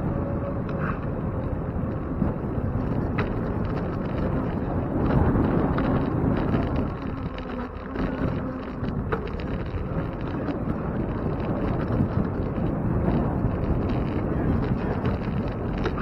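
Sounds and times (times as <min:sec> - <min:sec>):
bicycle rolling on paving: 0:00.0 - 0:16.0
wind buffeting microphone: 0:00.0 - 0:16.0.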